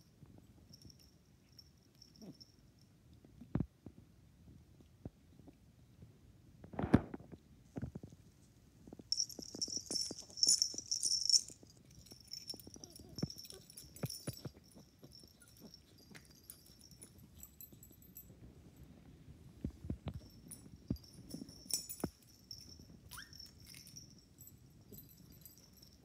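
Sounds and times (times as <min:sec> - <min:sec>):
collar tags jingling: 0:09.1 - 0:18.8, 0:20.0 - 0:26.0.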